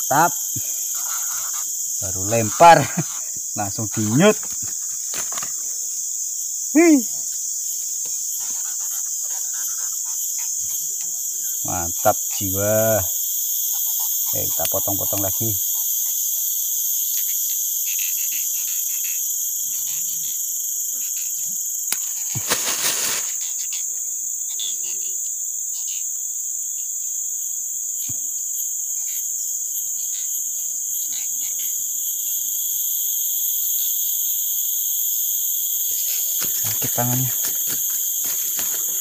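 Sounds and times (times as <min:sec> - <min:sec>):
insects chorus: 0:00.0 - 0:39.0
loud rustle: 0:22.0 - 0:23.5, 0:35.9 - 0:39.0.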